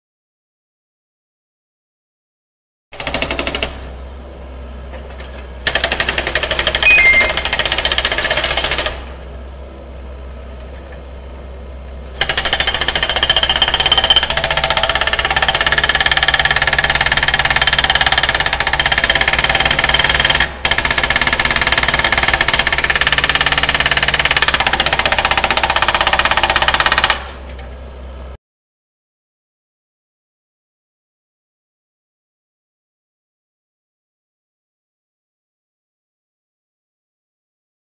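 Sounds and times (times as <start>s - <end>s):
hydraulic rock breaker hammering: 12.2s - 27.4s.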